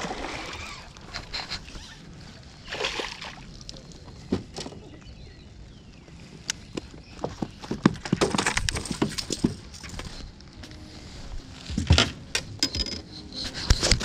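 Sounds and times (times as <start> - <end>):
fish thrashing in water: 0.0 - 1.0.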